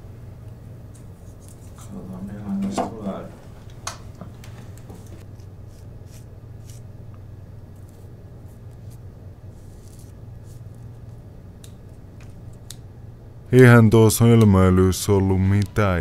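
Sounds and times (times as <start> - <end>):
steady low hum: 0.0 - 16.0
hands scratching on paper: 5.0 - 6.8, 7.8 - 10.8.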